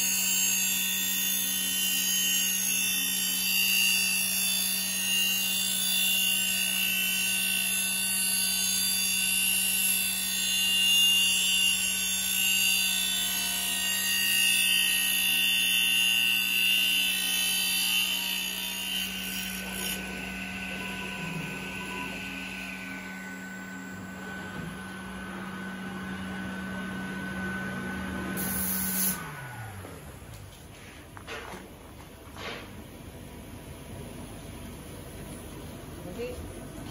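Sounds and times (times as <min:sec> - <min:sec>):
circular saw whine: 0:00.0 - 0:30.4
motor hum: 0:20.3 - 0:30.6.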